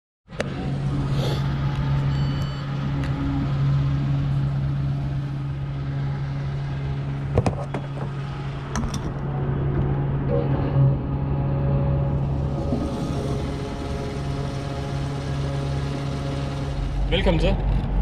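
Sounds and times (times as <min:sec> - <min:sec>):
payment terminal beeps: 0:02.1 - 0:02.8
fuel pump humming: 0:12.2 - 0:17.4.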